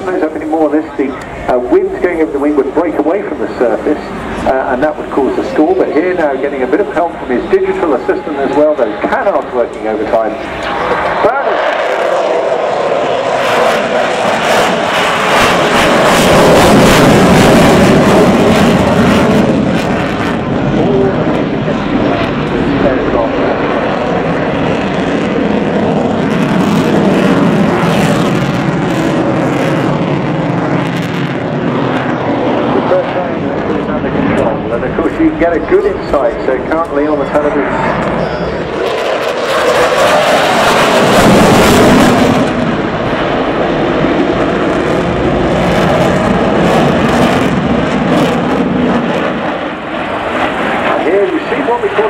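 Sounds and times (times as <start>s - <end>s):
jet engine rumble: 0.0s - 52.0s.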